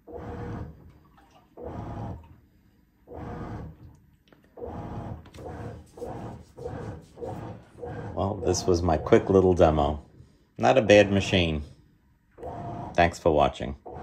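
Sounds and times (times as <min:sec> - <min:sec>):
washing machine agitating water: 0:00.0 - 0:02.5, 0:04.6 - 0:10.0, 0:12.4 - 0:14.0.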